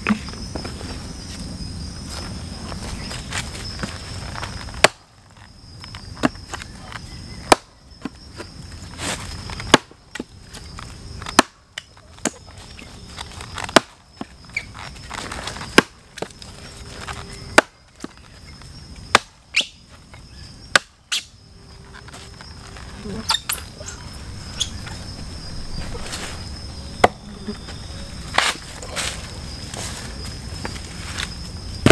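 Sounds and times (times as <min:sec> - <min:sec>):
high insect drone: 0:00.0 - 0:31.9
hatchet chopping into log: 0:07.5 - 0:07.7, 0:11.3 - 0:11.6, 0:19.1 - 0:19.3, 0:20.7 - 0:20.9.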